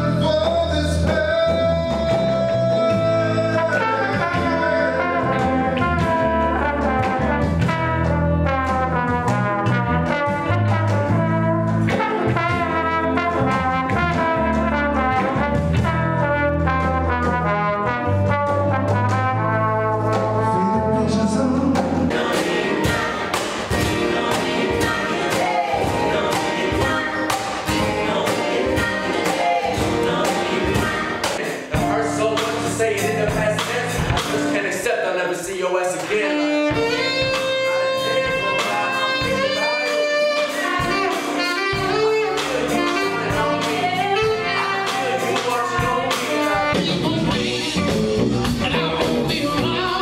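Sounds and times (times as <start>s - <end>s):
person singing: 0.0s - 6.0s, 20.4s - 23.1s, 24.2s - 50.0s
electric bass line: 0.0s - 34.6s, 40.6s - 50.0s
trombone melody: 0.0s - 34.8s, 36.1s - 50.0s
live band music: 0.0s - 50.0s.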